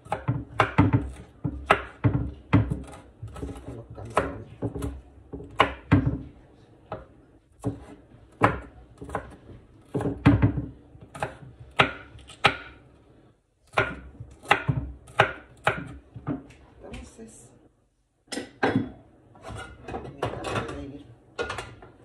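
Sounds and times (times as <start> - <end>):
knife chopping on wooden board: 0.0 - 6.3, 6.9 - 12.8, 13.7 - 16.5.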